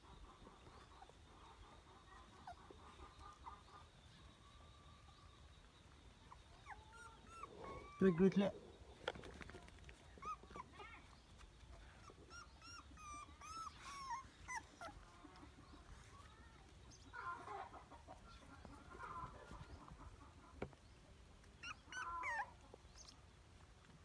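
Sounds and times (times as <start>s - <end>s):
puppies chirping: 0.0s - 4.6s, 5.3s - 20.6s, 21.4s - 23.2s
puppies whimpering and squeaking: 6.2s - 8.5s, 10.1s - 11.0s, 11.9s - 16.0s, 21.4s - 23.1s.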